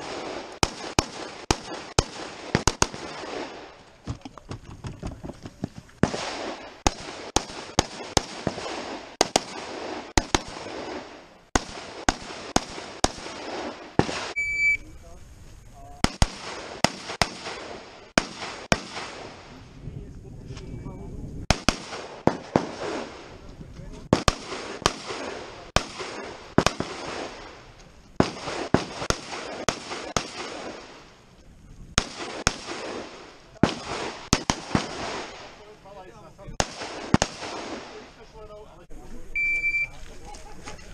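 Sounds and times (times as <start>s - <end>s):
rifle shots echoing: 0.0s - 4.0s, 6.0s - 14.4s, 16.0s - 19.6s, 21.4s - 23.4s, 24.1s - 31.1s, 31.9s - 35.8s, 36.6s - 38.3s.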